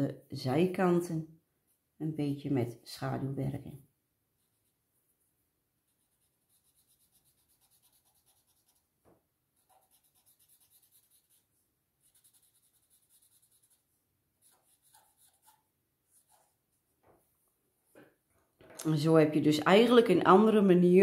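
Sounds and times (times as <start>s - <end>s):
pencil scratching on paper: 4.4s - 5.3s, 5.9s - 16.7s.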